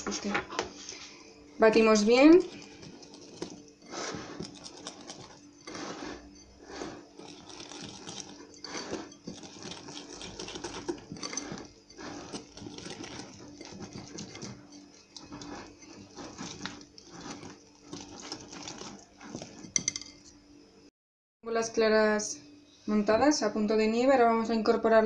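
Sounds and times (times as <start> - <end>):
motor hum: 0.0 - 20.9
whisk scraping glass bowl: 1.7 - 20.3.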